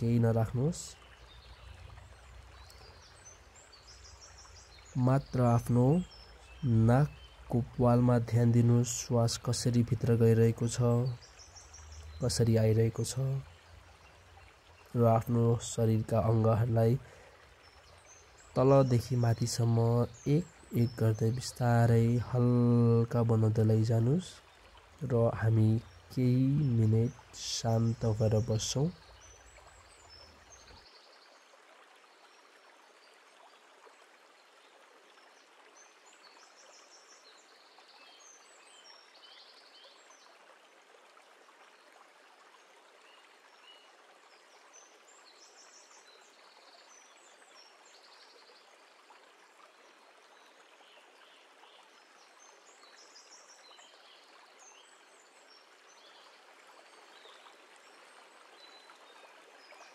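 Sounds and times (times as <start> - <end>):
small birds chirping: 0.0 - 31.4, 50.3 - 59.9
faint flowing stream: 0.0 - 59.9.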